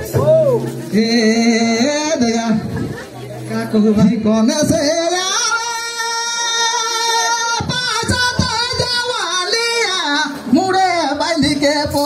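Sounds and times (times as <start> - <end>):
person singing a long high note: 3.6 - 10.4.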